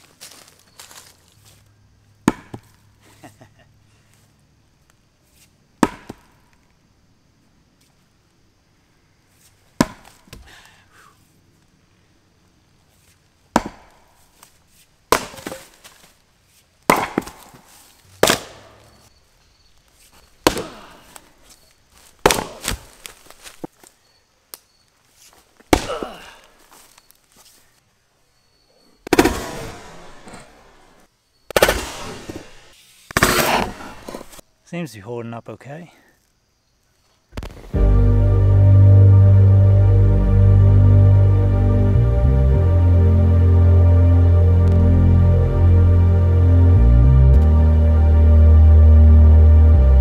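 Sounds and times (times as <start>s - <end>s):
axe chopping into log: 2.2s - 2.8s, 5.8s - 6.3s, 9.8s - 10.5s, 13.5s - 14.1s, 15.1s - 15.8s, 16.9s - 17.6s, 18.2s - 18.6s, 20.4s - 20.9s, 22.2s - 22.9s, 25.7s - 26.2s, 29.1s - 29.6s, 33.1s - 34.3s.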